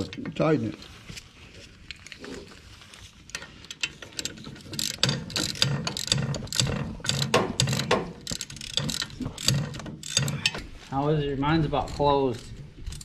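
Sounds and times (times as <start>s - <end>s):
ratchet wrench clicking: 3.3s - 10.6s.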